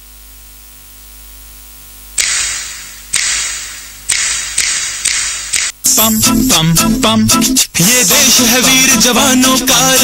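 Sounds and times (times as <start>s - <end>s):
loudspeaker hiss and mains hum: 0.0s - 10.0s
sharp noisy hits over speakers: 2.2s - 6.1s.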